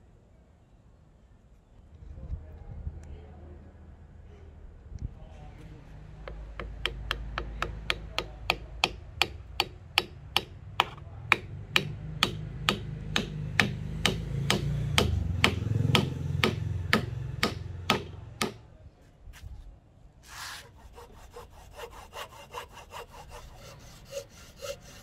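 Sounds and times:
hammer tapping wooden wedge: 6.2 - 18.6.

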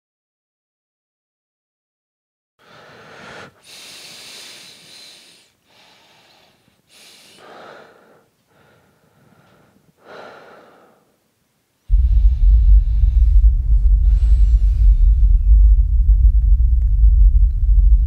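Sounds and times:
man breathing deeply: 2.6 - 11.2, 11.9 - 16.8.

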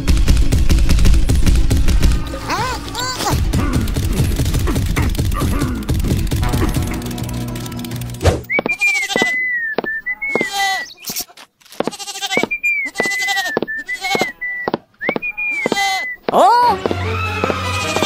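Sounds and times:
bleating call with wavering cries: 8.6 - 11.3, 11.9 - 14.7, 15.4 - 18.0.

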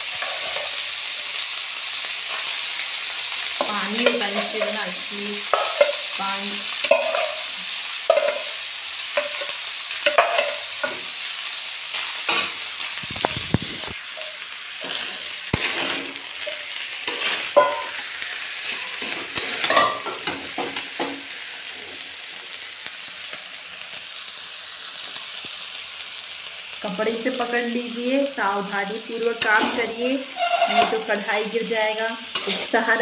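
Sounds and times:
rice sizzling in oil: 0.0 - 33.0
metal spatula scraping pan: 0.1 - 0.9, 6.8 - 7.5, 14.2 - 21.1, 29.4 - 31.3, 32.3 - 32.8.

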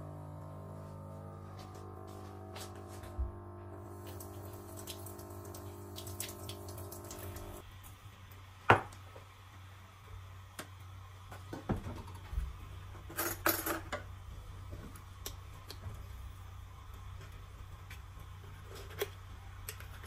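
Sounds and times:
steady hum: 0.0 - 13.2.

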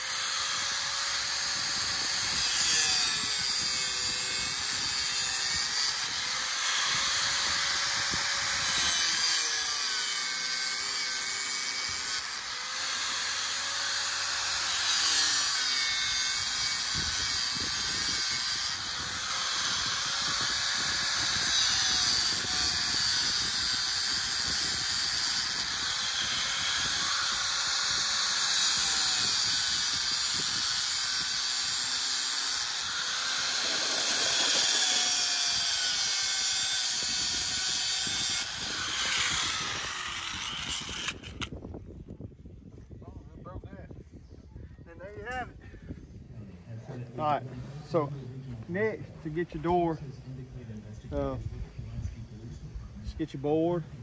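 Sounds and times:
angle grinder cutting steel wire: 0.0 - 41.6.

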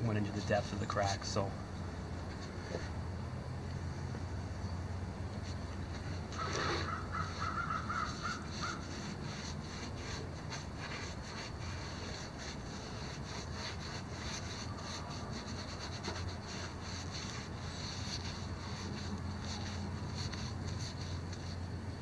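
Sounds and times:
paintbrush scrubbing wood: 5.4 - 22.0
bird calling harsh notes: 6.3 - 9.1.

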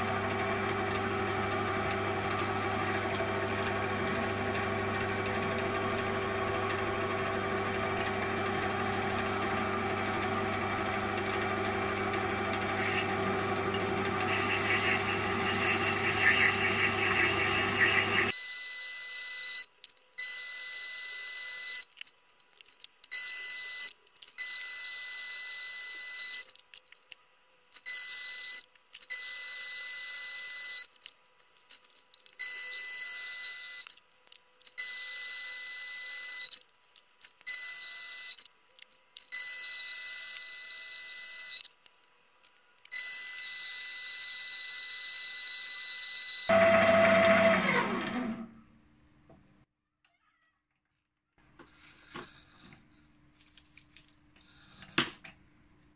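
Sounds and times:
lathe high-pitched whine: 0.0 - 19.6.

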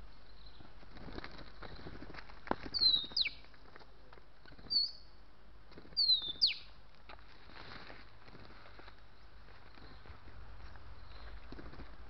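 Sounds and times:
bird whistling: 4.7 - 5.0, 6.0 - 6.7.

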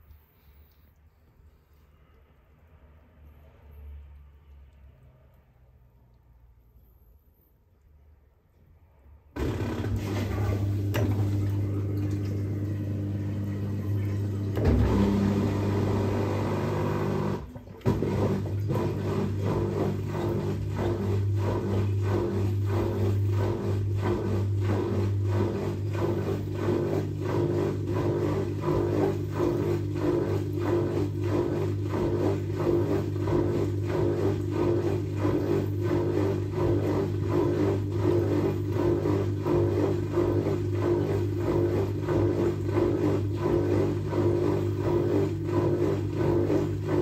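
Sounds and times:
washing machine hum: 9.3 - 47.0
washing machine rhythmic beat: 9.4 - 47.0.

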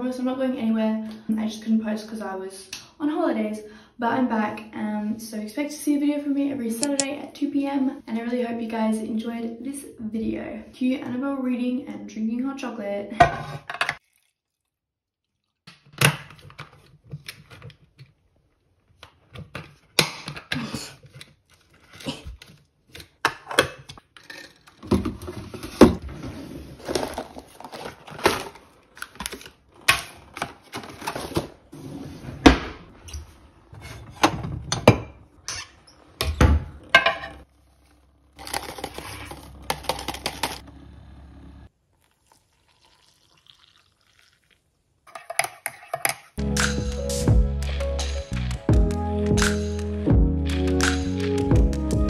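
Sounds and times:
packaging rustling: 26.7 - 31.7, 37.6 - 40.6
kitchen clicks and knocks: 33.8 - 37.4, 45.1 - 46.4.

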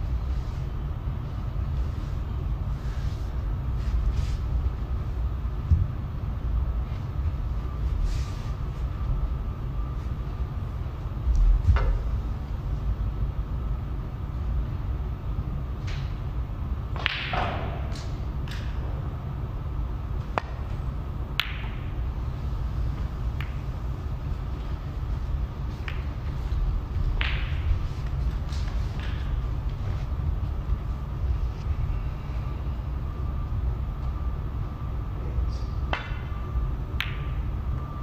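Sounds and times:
steady low hum: 0.0 - 38.0
cue striking ball: 16.9 - 18.7, 21.4 - 22.0, 27.1 - 27.8
snooker balls clicking: 21.4 - 22.0, 23.0 - 23.9, 25.6 - 29.8, 37.0 - 37.5.

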